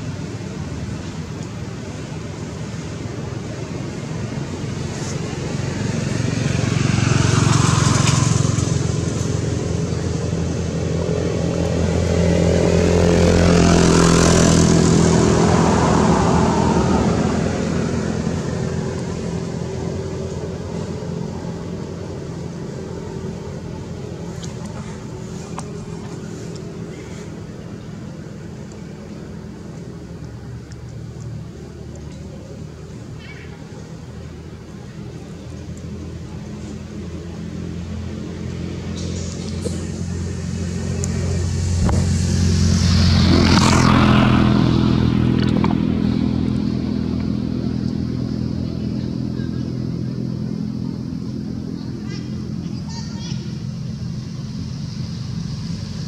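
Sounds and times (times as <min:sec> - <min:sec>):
faint engine hum: 0:00.0 - 0:56.0
vehicles passing by: 0:00.0 - 0:56.0.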